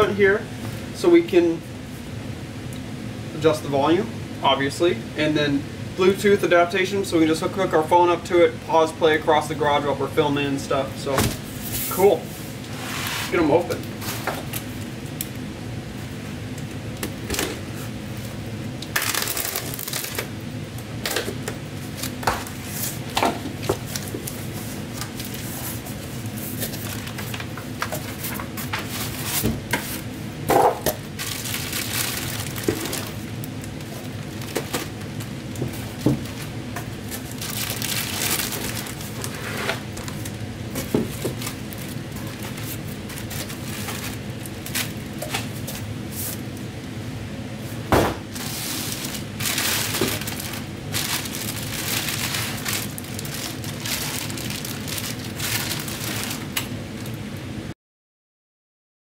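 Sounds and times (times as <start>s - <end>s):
steady low hum: 0.0s - 57.7s
packing material rustling and tearing: 18.9s - 20.3s, 21.0s - 30.1s, 30.8s - 46.4s, 48.3s - 56.7s.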